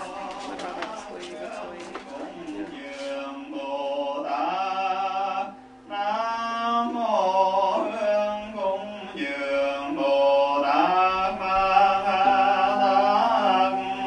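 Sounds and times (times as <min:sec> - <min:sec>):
man singing slow melody: 0:00.0 - 0:14.0.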